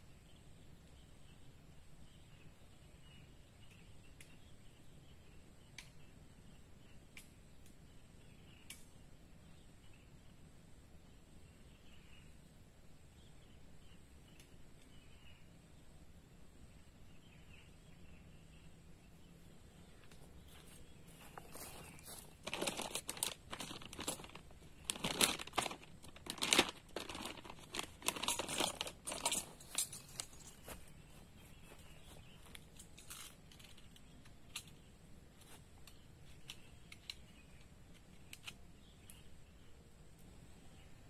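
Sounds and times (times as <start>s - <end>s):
faint ticks: 5.7s - 6.1s, 7.1s - 7.8s
dry material crinkling and rustling: 20.5s - 30.8s.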